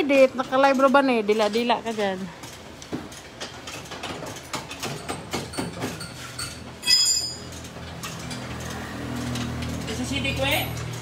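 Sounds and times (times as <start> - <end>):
metal hand tools clinking: 4.7 - 8.6
loud ringing metallic clank: 5.5 - 7.6.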